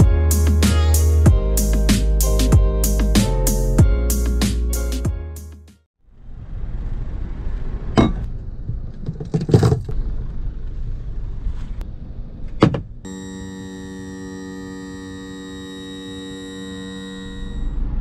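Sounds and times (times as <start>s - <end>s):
sharp thumps and knocks: 12.6s - 13.0s.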